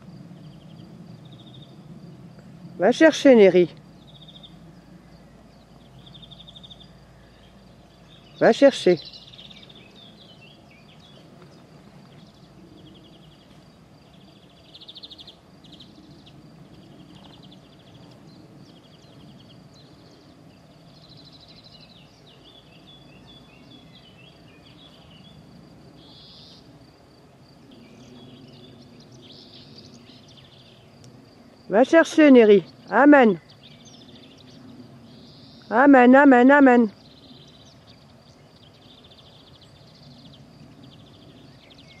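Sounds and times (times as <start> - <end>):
birds singing: 0.0 - 42.0
high insect note: 0.0 - 42.0
insects chirping: 0.0 - 42.0.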